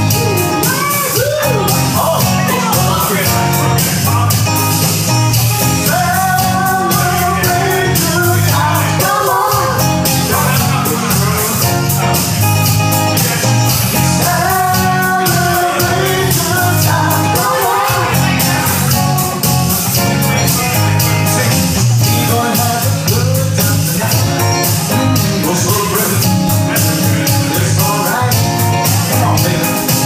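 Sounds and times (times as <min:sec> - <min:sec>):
drum kit beat: 0:00.0 - 0:30.0
electric bass: 0:00.0 - 0:30.0
electric guitar: 0:00.0 - 0:30.0
woman singing: 0:00.1 - 0:02.8, 0:05.8 - 0:11.2, 0:14.2 - 0:18.7.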